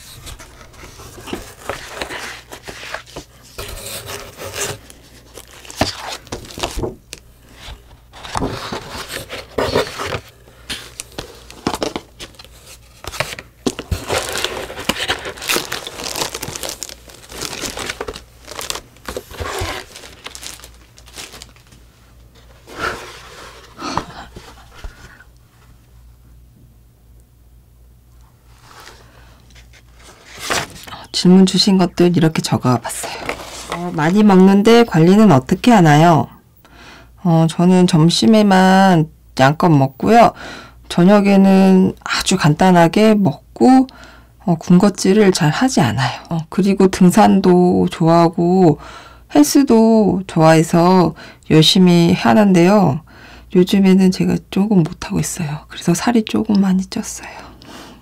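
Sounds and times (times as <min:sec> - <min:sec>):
plastic sleeve crinkling: 0:00.0 - 0:25.2
cardboard box handled: 0:10.9 - 0:21.7.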